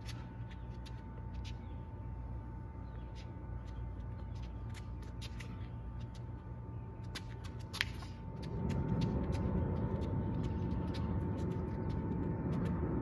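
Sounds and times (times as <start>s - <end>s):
sneakers scuffing on asphalt: 2.9s - 12.8s
low rumble: 8.0s - 13.0s.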